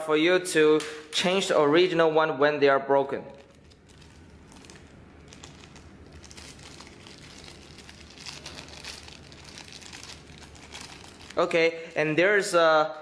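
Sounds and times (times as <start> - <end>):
plastic bag crinkling: 3.3 - 12.1.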